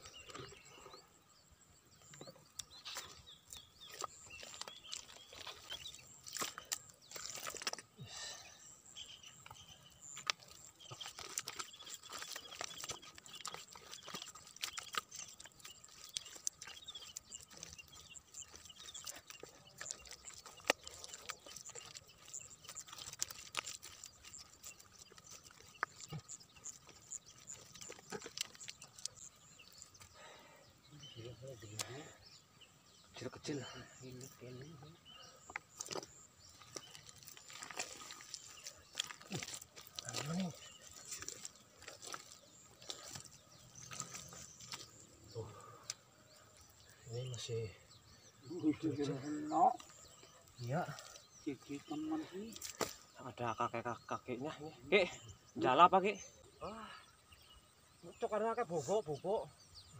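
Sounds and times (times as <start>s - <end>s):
hands squelching in wet mud: 2.6s - 30.5s, 35.2s - 46.0s, 48.9s - 53.2s.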